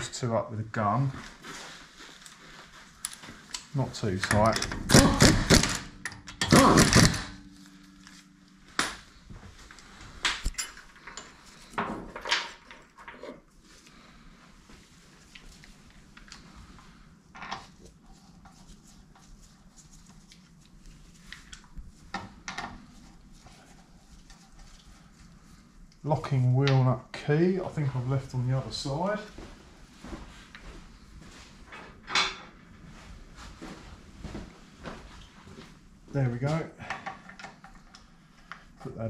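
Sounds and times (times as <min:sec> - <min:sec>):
air impact wrench: 0:04.7 - 0:07.4.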